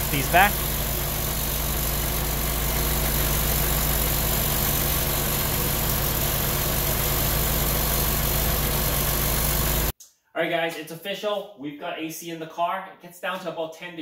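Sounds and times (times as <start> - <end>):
air conditioning compressor running: 0.0 - 9.9
car engine idling: 0.0 - 9.9.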